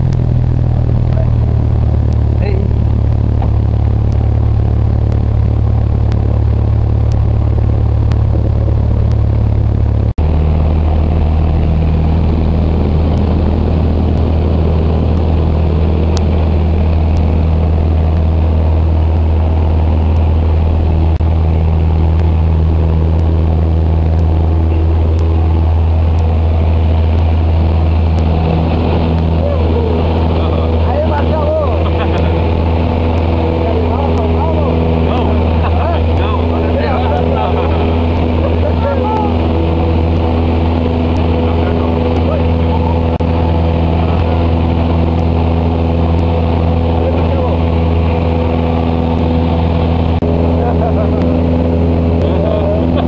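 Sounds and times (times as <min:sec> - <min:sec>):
airplane engine droning in cabin: 0:00.0 - 0:53.0.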